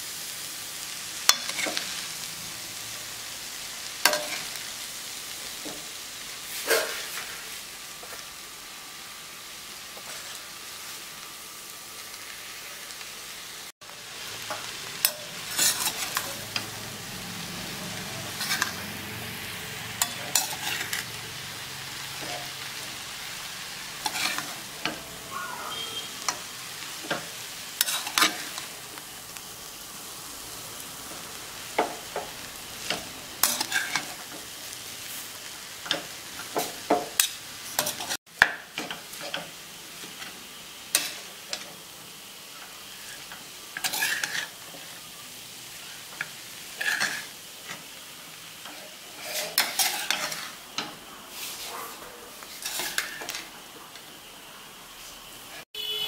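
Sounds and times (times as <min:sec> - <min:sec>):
noodles sizzling in a pan: 0:00.0 - 0:56.0
utensils clinking and scraping pan: 0:01.3 - 0:02.0, 0:04.0 - 0:04.6, 0:05.6 - 0:05.9, 0:06.5 - 0:08.2, 0:14.4 - 0:16.8, 0:17.9 - 0:18.9, 0:19.9 - 0:21.2, 0:22.1 - 0:23.1, 0:24.0 - 0:28.7, 0:31.7 - 0:35.2, 0:35.8 - 0:41.8, 0:42.6 - 0:45.1, 0:45.8 - 0:48.0, 0:48.6 - 0:53.6.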